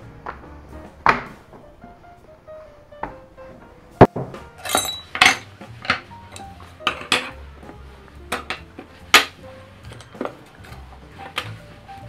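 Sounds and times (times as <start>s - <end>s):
metal tools clinking on wood: 4.6s - 6.0s.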